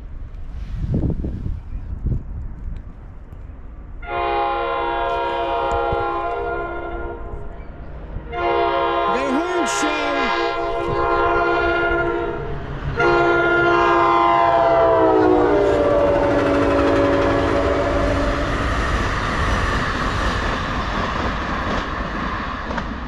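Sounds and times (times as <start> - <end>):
passenger cars rumbling on rails: 0.0 - 23.0
locomotive chime horn: 4.0 - 7.5, 8.3 - 18.5.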